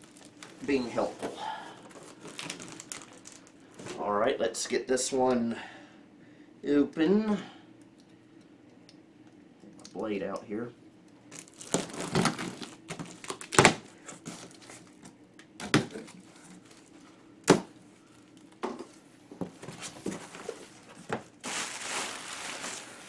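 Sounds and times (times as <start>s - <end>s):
plastic packing crinkling: 0.0s - 4.1s, 11.3s - 17.0s, 19.6s - 23.0s.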